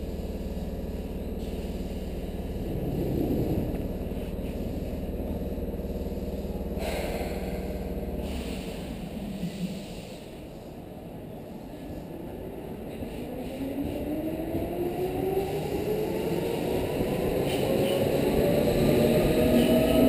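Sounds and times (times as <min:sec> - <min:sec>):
train equipment humming: 0:00.0 - 0:20.0.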